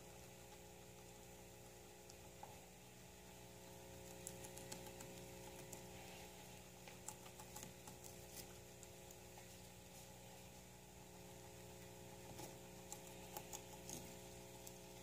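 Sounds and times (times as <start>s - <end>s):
guinea pig chewing greens: 0.0s - 15.0s
low electrical hum: 0.0s - 15.0s.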